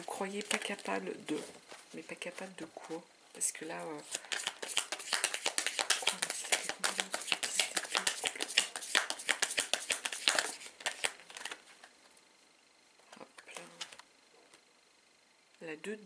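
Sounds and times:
cards being shuffled: 0:00.3 - 0:02.5, 0:04.0 - 0:11.9, 0:13.4 - 0:14.0
card being drawn: 0:04.0 - 0:11.6.

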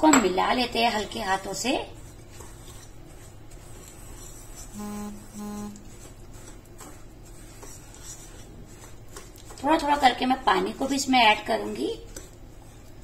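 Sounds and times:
whisk stirring in glass bowl: 0:00.0 - 0:13.0
low-pitched beeps: 0:04.8 - 0:05.8.

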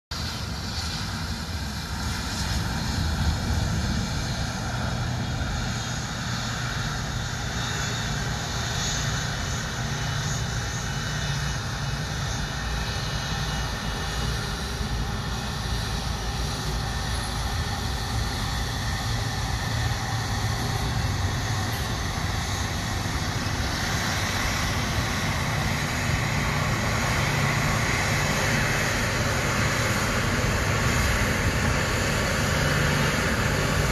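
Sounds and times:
jet engines taxiing: 0:00.1 - 0:33.9.

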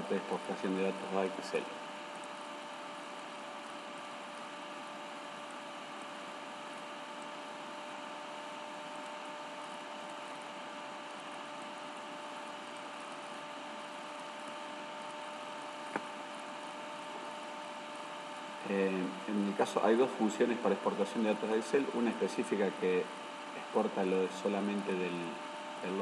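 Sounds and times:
faint whine or hum: 0:00.0 - 0:26.0.

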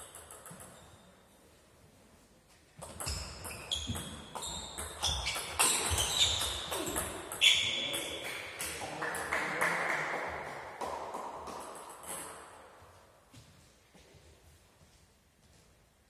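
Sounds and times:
table tennis ball hits: 0:02.8 - 0:12.6.

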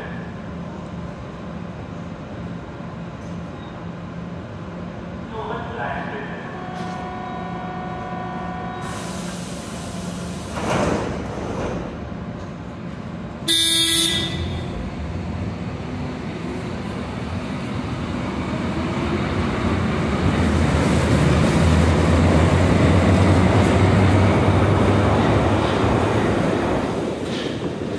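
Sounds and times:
train motor hum and wheel rumble: 0:00.0 - 0:27.9
train horn toot: 0:06.4 - 0:09.0, 0:13.5 - 0:14.8.

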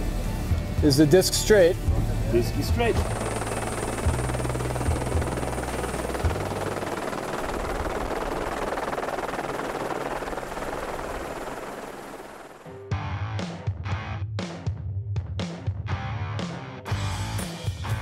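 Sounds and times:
helicopter rotor and engine roar: 0:01.1 - 0:12.8.

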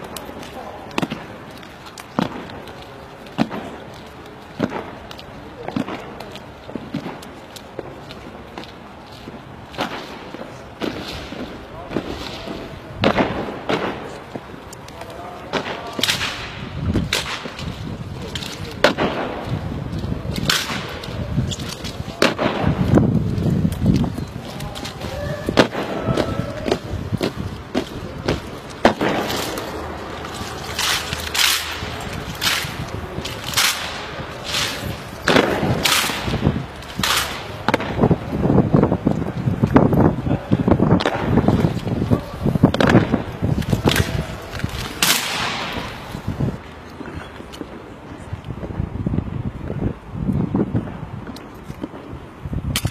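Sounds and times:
boots marching on tarmac: 0:00.0 - 0:16.0, 0:16.6 - 0:48.8
shouted voices: 0:24.4 - 0:27.1.

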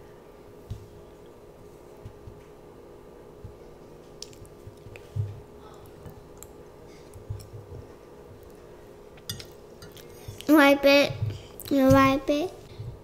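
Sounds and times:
faint steady hum: 0:00.0 - 0:13.0
child chewing: 0:04.1 - 0:10.6.

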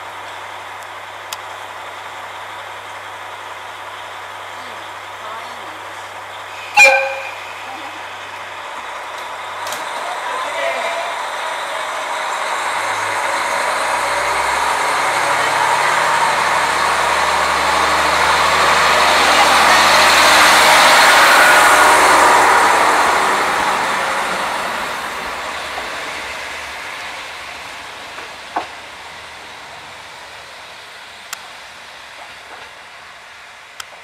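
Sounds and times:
train wheel noise: 0:00.0 - 0:34.0
diesel engine revving: 0:07.4 - 0:30.9.

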